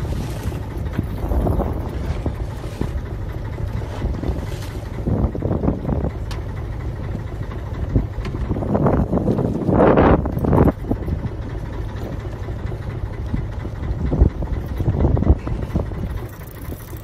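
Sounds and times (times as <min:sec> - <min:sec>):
boat rumble: 0:00.0 - 0:17.0
wind buffeting microphone: 0:00.0 - 0:17.0
faint clicks and knocks: 0:06.2 - 0:06.5.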